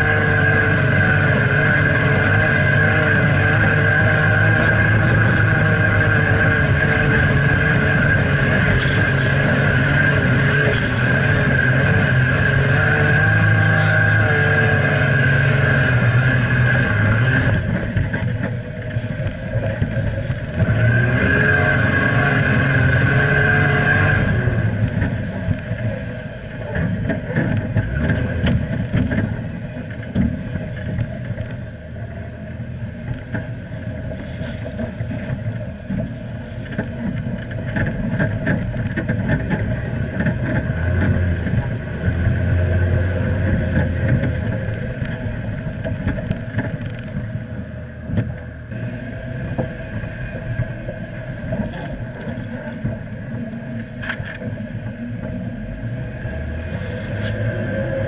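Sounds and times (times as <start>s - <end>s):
tyres churning sand: 0.0s - 31.3s
car engine under load: 0.0s - 58.0s.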